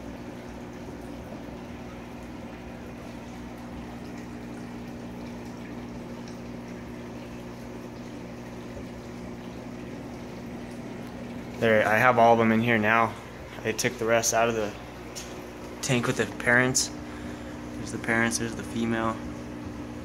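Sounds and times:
aquarium equipment humming: 0.0s - 20.0s
sponge filter bubbling: 0.0s - 20.0s.

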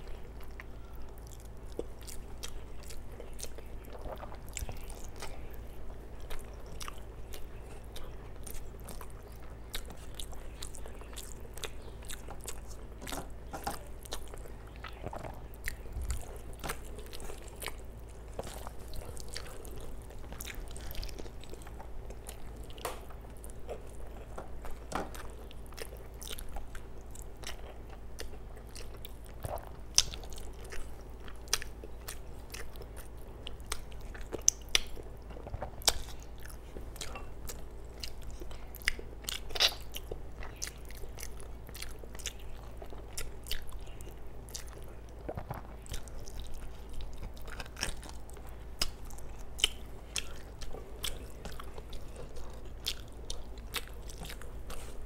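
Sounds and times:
person chewing with lip smacks: 0.1s - 55.0s.

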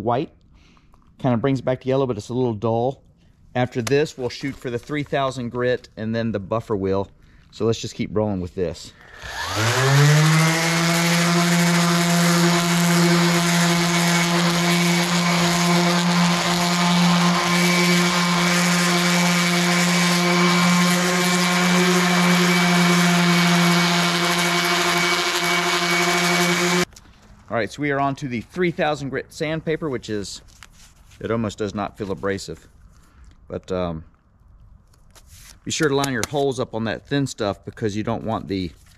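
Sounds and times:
orbital sander sanding plastic: 9.0s - 26.9s.

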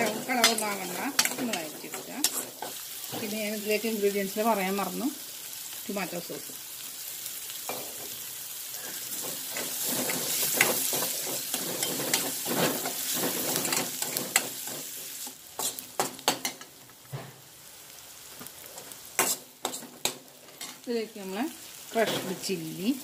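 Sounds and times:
metal spoon scraping pan: 0.0s - 3.3s, 8.8s - 15.0s, 19.2s - 20.8s
shallots sizzling in hot oil: 0.0s - 23.0s.

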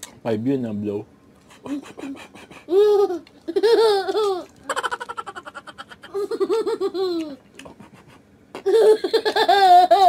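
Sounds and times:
young boy laughing: 1.6s - 7.5s, 8.6s - 10.0s.

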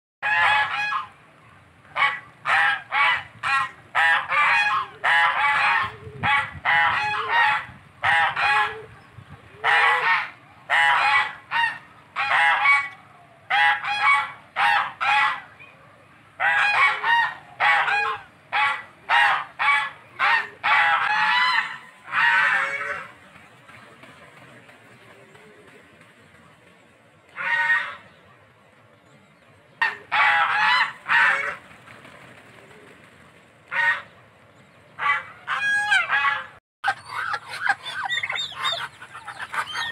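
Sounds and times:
geese honking: 0.2s - 1.2s, 1.9s - 8.9s, 9.6s - 15.5s, 16.4s - 24.0s, 27.3s - 28.2s, 29.8s - 31.7s, 33.7s - 34.2s, 35.0s - 39.9s.

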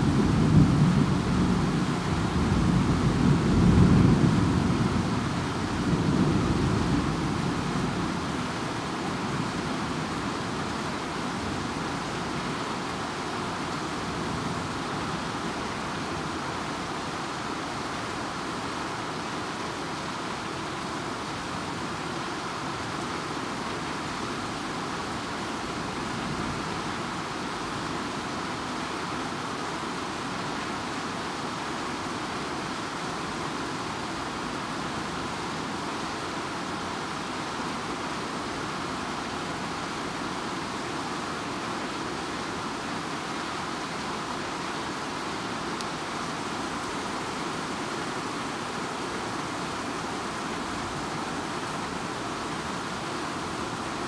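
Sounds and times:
low rumble of thunder: 0.0s - 8.6s
steady rain hiss: 0.0s - 54.0s.

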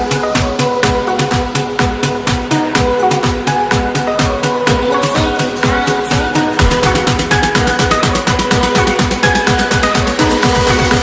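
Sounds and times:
electronic dance music: 3.1s - 11.0s.

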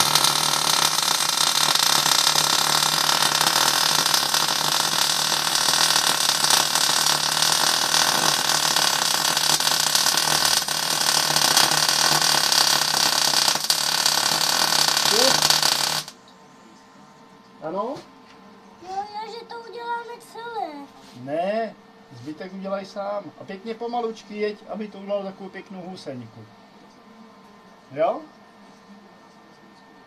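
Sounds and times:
welding arc hissing: 0.0s - 16.1s.

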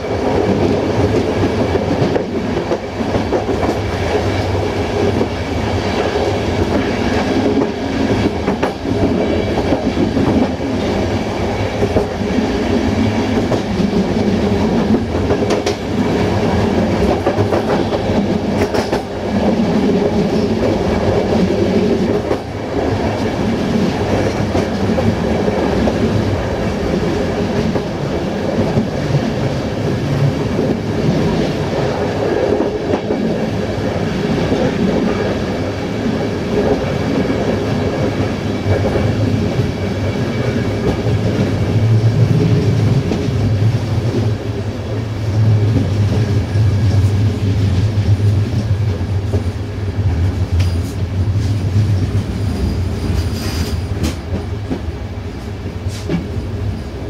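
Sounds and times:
train wheels clattering: 0.1s - 35.7s, 50.3s - 55.0s.

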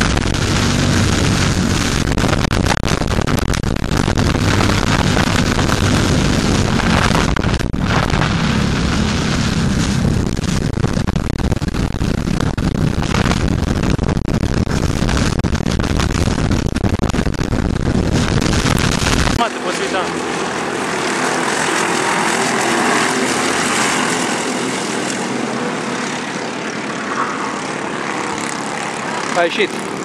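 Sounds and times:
go-kart engine running hard: 0.0s - 2.1s, 19.4s - 30.0s
wind buffeting microphone: 0.0s - 30.0s.

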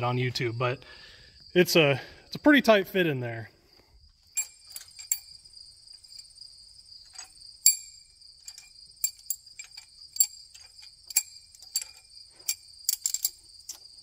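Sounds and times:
crickets chirping: 0.0s - 14.0s
metal pushrods clinking: 4.3s - 6.3s, 7.0s - 13.9s.

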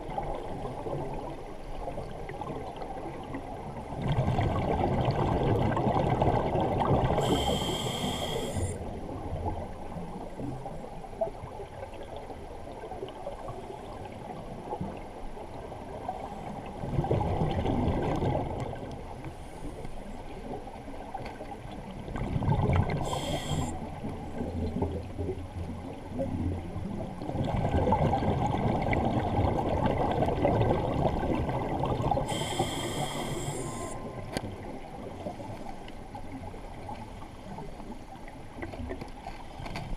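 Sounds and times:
exhaled bubbles gurgling underwater: 0.0s - 39.9s
regulator hissing inhalation: 7.2s - 8.8s, 23.0s - 23.8s, 32.3s - 34.1s.

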